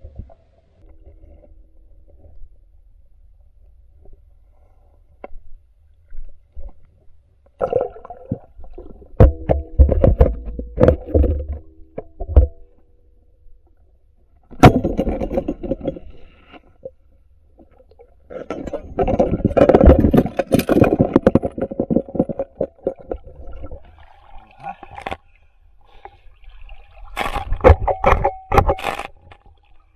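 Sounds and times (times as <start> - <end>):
muffled underwater knocks and scrapes: 0.0 - 12.9, 14.4 - 29.9
underwater rumbling: 7.6 - 25.1.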